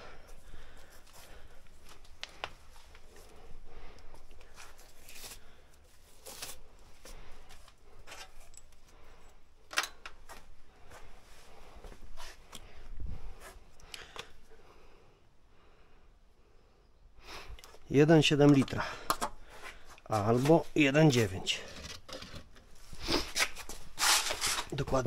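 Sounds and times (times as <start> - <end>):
handling clicks and knocks: 9.7 - 10.4, 18.4 - 19.4.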